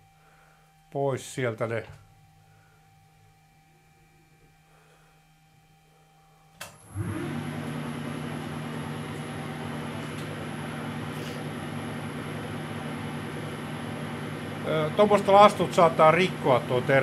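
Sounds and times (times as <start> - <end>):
lathe motor and gear hum: 6.8 - 17.0.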